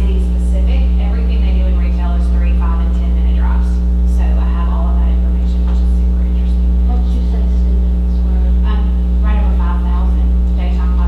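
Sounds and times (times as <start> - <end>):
electrical mains hum: 0.0 - 11.0.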